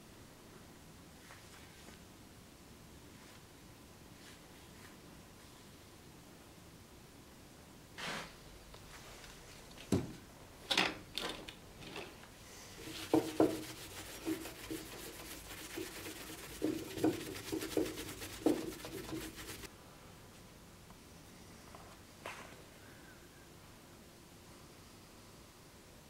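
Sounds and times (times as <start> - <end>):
scratchy abrasive strokes on steel: 12.8 - 19.7.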